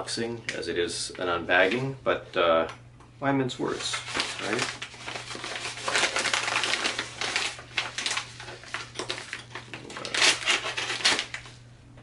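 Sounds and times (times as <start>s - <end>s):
envelope tearing and rustling: 3.7s - 11.6s.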